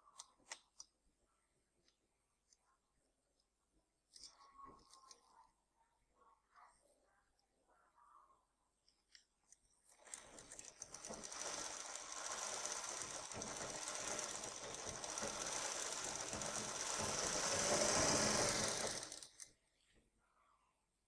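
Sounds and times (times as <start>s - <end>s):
sewing machine running: 9.9s - 19.5s.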